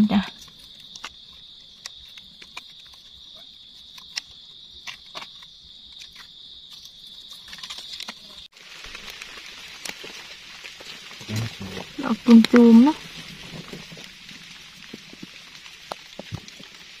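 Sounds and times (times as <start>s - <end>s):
high-pitched insect drone: 10.9s - 14.8s.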